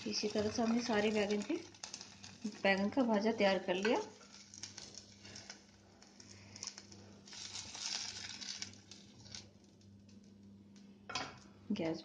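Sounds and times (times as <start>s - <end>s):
frying in oil: 0.0s - 11.9s
wooden spatula scraping a pan: 3.8s - 9.4s.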